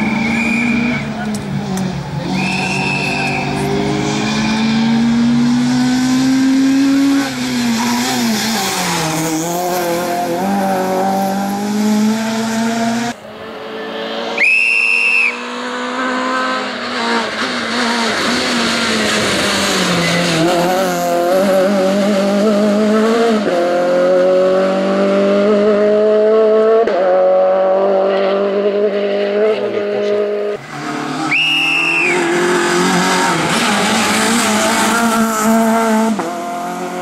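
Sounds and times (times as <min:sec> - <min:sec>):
high squeal: 0:00.0 - 0:01.1, 0:02.3 - 0:03.6, 0:14.4 - 0:15.4, 0:19.9 - 0:20.5, 0:31.3 - 0:32.3
rally car engine revving hard: 0:00.0 - 0:14.4, 0:15.3 - 0:37.0.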